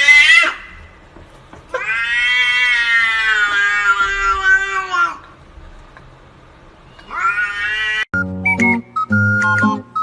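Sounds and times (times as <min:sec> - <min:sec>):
cat meowing: 0:01.7 - 0:05.2, 0:07.0 - 0:08.1.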